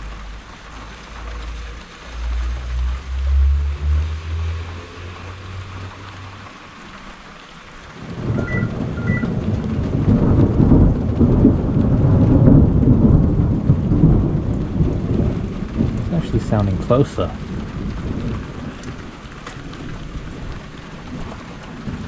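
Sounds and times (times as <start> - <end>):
light rain: 0.0 - 22.0
thunder rumbling: 7.9 - 22.0.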